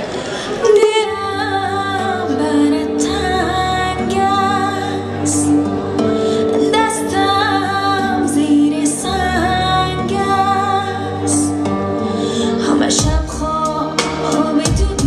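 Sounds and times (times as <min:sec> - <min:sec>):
woman singing pop song: 0:00.6 - 0:15.0
band accompaniment: 0:11.4 - 0:15.0.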